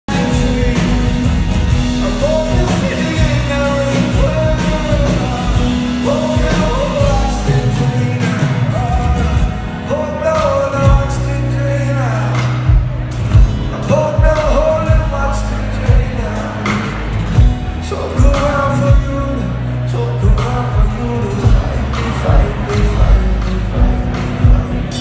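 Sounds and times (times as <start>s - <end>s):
folk-rock band playing: 0.1s - 25.0s
man singing: 0.1s - 25.0s.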